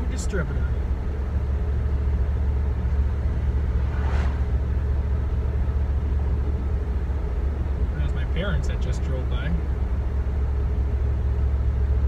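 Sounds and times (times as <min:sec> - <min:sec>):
engine and road rumble: 0:00.0 - 0:12.0
passing car whoosh: 0:03.4 - 0:05.0.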